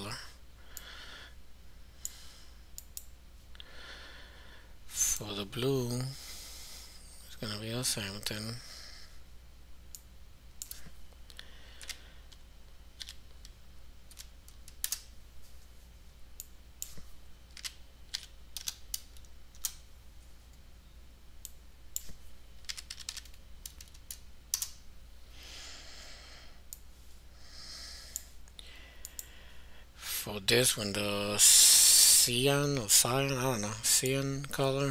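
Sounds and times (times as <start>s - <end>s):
low steady hum: 0.0s - 34.9s
keyboard and mouse clicks: 9.9s - 11.0s, 13.0s - 15.1s, 16.4s - 19.8s, 21.4s - 24.8s
soft hiss: 23.3s - 34.9s.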